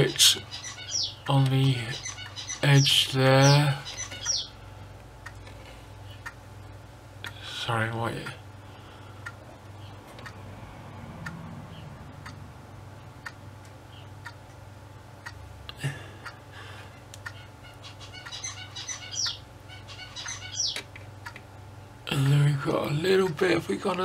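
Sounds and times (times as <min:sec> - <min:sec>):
low steady hum: 0:00.0 - 0:24.0
high bird-like chirps: 0:00.4 - 0:01.3, 0:01.9 - 0:04.6, 0:17.3 - 0:20.8.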